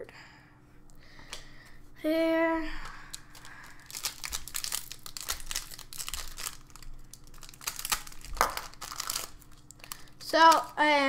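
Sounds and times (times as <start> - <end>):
foil wrapper crinkling: 2.9 - 11.0.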